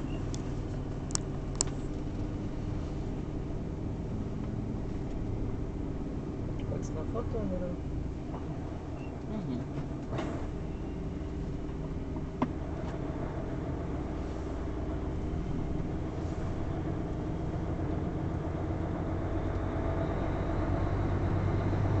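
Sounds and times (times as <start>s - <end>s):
vehicle engine and road noise: 0.0s - 22.0s.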